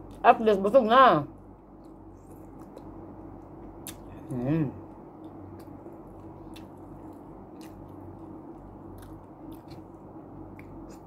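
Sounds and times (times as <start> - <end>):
steady low hum: 0.0 - 11.0
person chewing food: 1.5 - 11.0
mouth clicks and smacks: 3.8 - 4.1.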